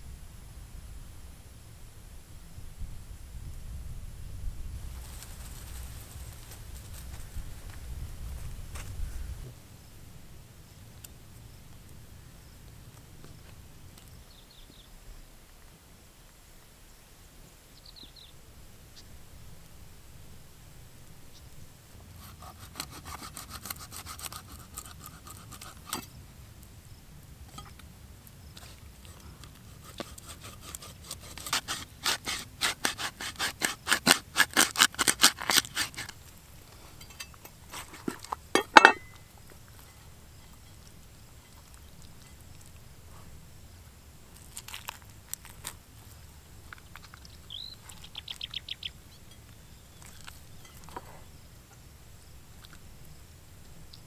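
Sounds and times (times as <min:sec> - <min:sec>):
cleaver scraping fish scales: 0:22.2 - 0:26.1, 0:28.6 - 0:39.2.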